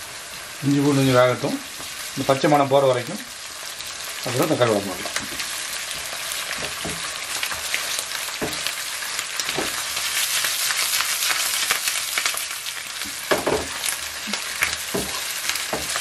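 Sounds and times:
onions sizzling in hot oil: 0.0s - 16.0s
wooden spatula scraping pan: 14.6s - 16.0s.

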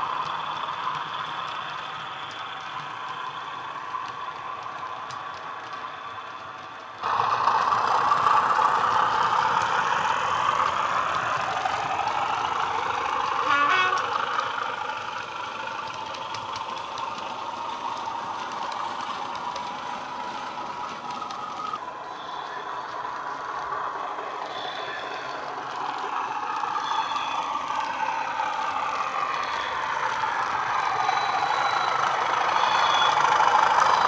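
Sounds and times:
diesel engine sound from speaker: 7.0s - 34.0s.

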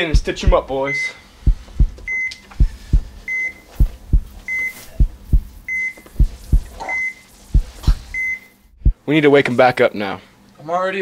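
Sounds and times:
heartbeat double thump: 0.1s - 0.7s, 1.4s - 3.2s, 3.8s - 6.8s, 7.5s - 8.2s, 8.8s - 9.0s
heart monitor beep: 0.9s - 8.5s.

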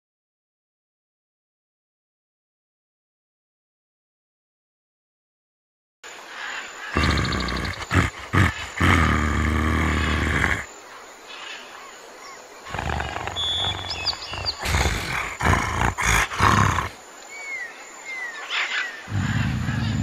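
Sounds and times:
bird chirps: 6.4s - 8.8s, 11.6s - 15.8s, 16.8s - 20.0s
big cat roaring: 6.9s - 10.7s, 12.7s - 17.0s, 19.1s - 20.0s.

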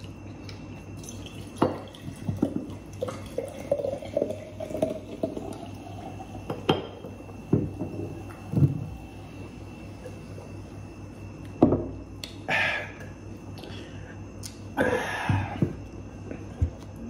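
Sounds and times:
breathy exhales: 12.5s - 13.0s.

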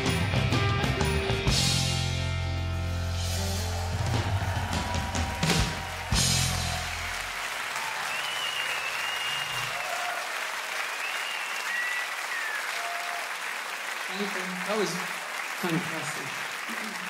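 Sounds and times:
rock band final hit: 0.0s - 7.2s
audience applause and cheering: 2.8s - 17.0s
whistles: 7.8s - 10.0s, 10.8s - 13.2s.

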